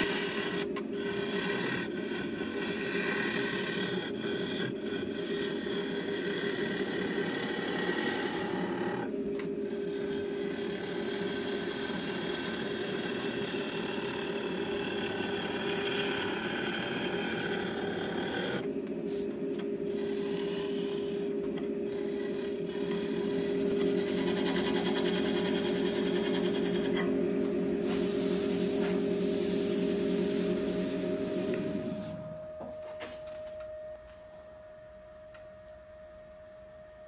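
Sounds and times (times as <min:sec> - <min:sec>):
gouge cutting wood hiss: 0:00.0 - 0:09.1, 0:09.7 - 0:19.3, 0:19.9 - 0:21.3, 0:21.9 - 0:32.1
wood lathe humming: 0:00.0 - 0:27.2.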